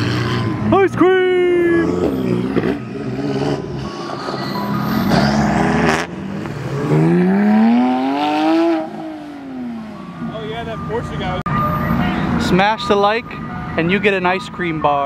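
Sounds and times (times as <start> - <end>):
car engine revving: 0.0 - 11.1.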